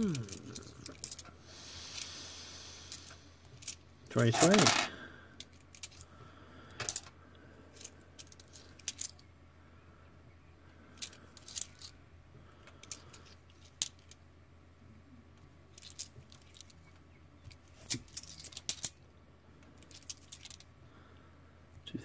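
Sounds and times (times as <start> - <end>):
faint low hum: 0.0 - 22.0
coins clicking and clinking: 3.6 - 4.9, 17.8 - 19.0.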